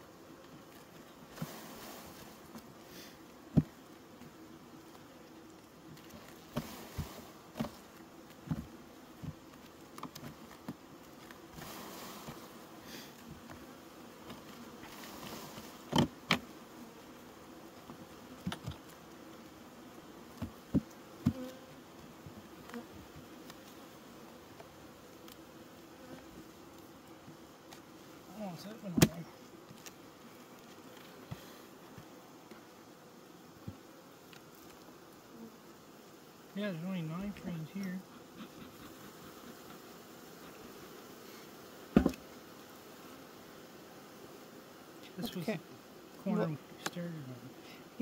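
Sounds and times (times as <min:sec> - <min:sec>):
bees buzzing: 0:00.0 - 0:48.0
hive tool clicks and knocks: 0:42.0 - 0:42.2.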